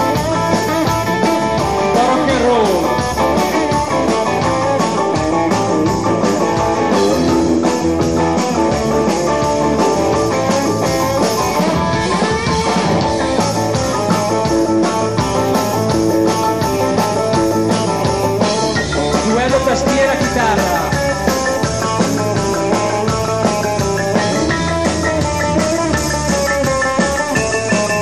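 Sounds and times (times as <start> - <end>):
lead guitar with bending notes: 0.0 - 28.0
live rock and roll band: 0.0 - 28.0.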